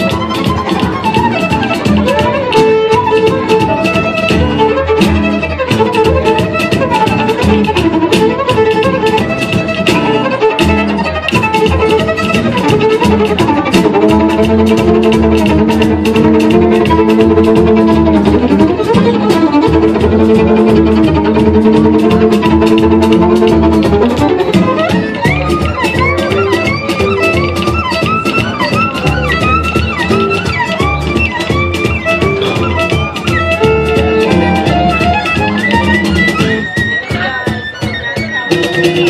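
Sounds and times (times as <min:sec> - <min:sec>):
amplified violin melody: 0:00.0 - 0:39.0
steady beat: 0:00.0 - 0:39.0
low bass line: 0:09.1 - 0:31.7.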